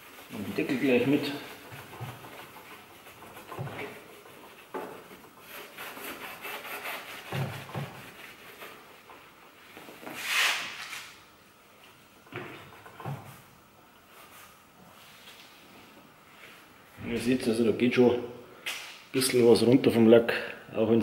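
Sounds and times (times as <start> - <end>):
pad rubbing on painted metal: 0.0 - 9.4.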